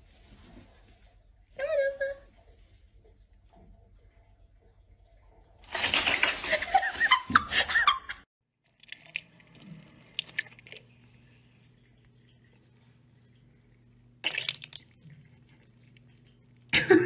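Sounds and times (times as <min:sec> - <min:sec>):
faucet trickling water: 0:08.6 - 0:16.9
water drips and splashes: 0:08.6 - 0:16.9.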